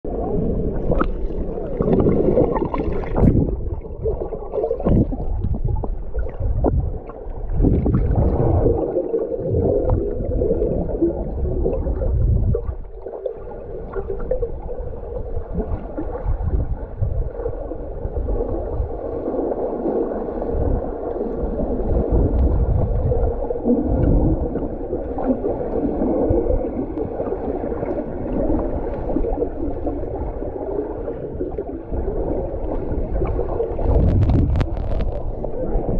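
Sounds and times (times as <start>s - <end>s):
underwater churning and bubbling: 0.0s - 35.9s
low underwater thumps: 0.9s - 8.8s, 33.2s - 35.9s.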